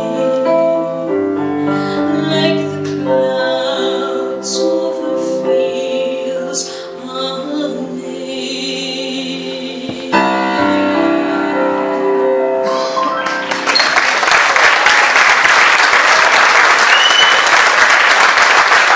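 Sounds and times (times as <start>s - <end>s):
piano playing: 0.0s - 17.0s
crowd applauding: 13.1s - 18.9s.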